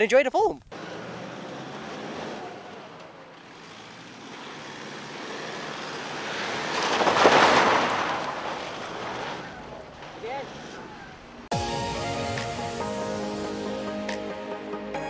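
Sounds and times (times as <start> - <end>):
vehicle passing by: 0.7 - 11.5.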